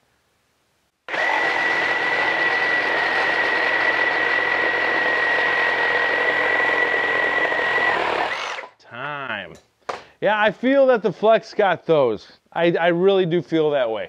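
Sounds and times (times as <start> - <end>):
reciprocating saw cutting wood: 1.1 - 8.8.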